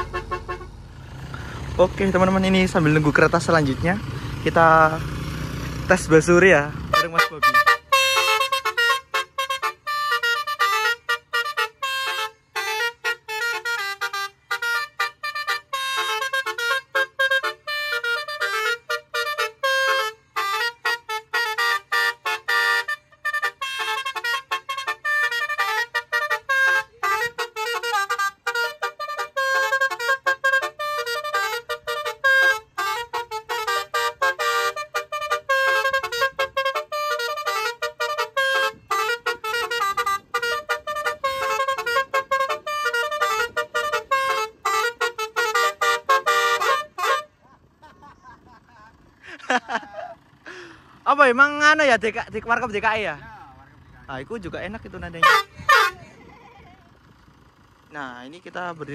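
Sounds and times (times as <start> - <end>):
musical car horn melody: 0.0 - 5.1, 5.9 - 57.9.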